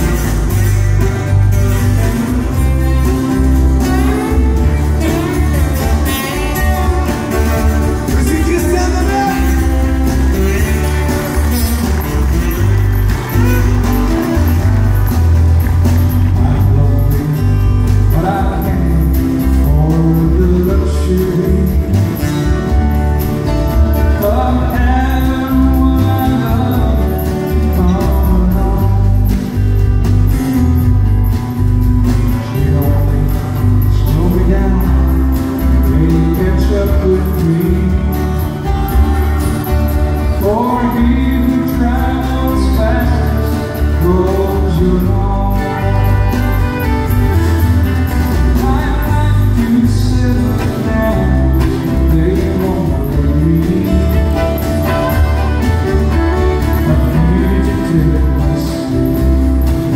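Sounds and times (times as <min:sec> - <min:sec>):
acoustic guitars strummed: 0:00.0 - 0:59.9
men singing: 0:08.0 - 0:12.6, 0:24.0 - 0:29.4, 0:40.4 - 0:46.8, 0:48.4 - 0:59.9.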